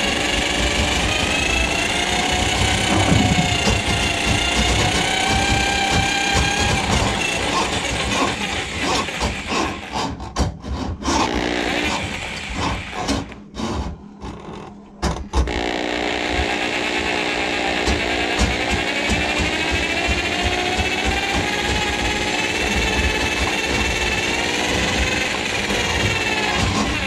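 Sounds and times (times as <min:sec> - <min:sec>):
drain auger motor whine: 0:00.0 - 0:09.9, 0:15.5 - 0:27.0
cable knocking and rattling: 0:00.6 - 0:08.4, 0:18.0 - 0:27.0.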